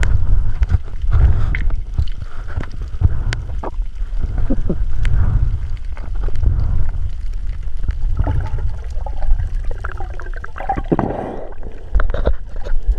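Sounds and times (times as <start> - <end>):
clicks and crackles: 0.0 - 12.9
muffled underwater rumble: 0.0 - 12.9
water gurgling and bubbling: 0.0 - 12.9.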